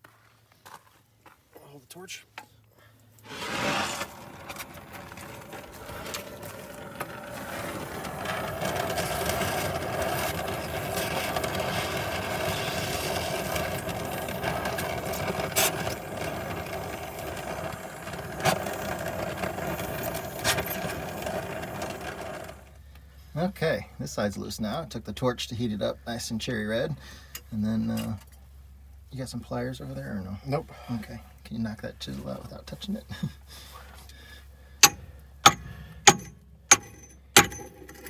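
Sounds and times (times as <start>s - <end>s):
gas torch flame roaring: 3.2s - 22.8s.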